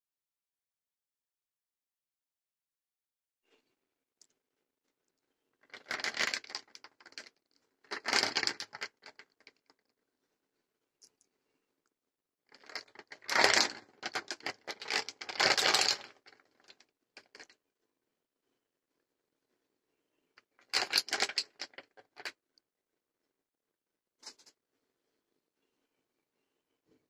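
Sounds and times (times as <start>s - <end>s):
walnuts clattering in plastic basket: 5.7s - 7.3s, 7.9s - 9.3s, 12.6s - 17.4s, 20.7s - 22.3s.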